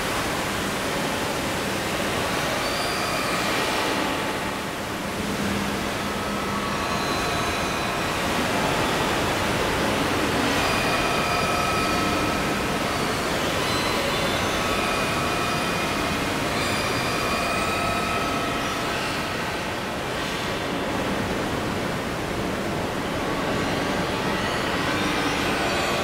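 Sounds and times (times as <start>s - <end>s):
dense electronic noise wash: 0.0s - 26.0s
faint high sustained tones: 2.0s - 21.2s.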